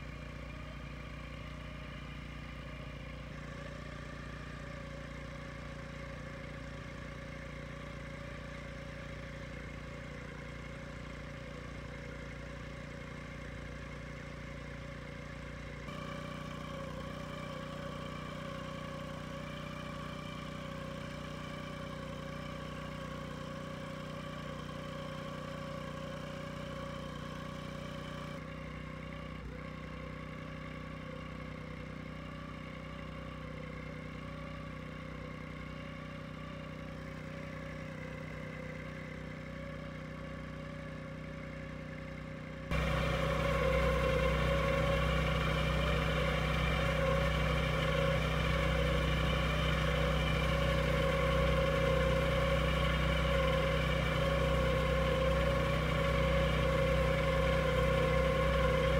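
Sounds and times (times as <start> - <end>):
boat motor humming: 42.7 - 58.9.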